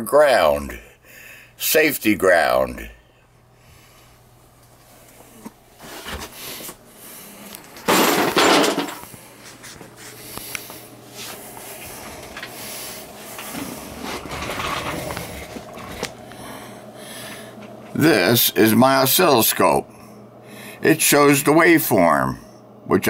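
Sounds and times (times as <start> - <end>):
loud scrape or clatter: 13.5 - 15.2.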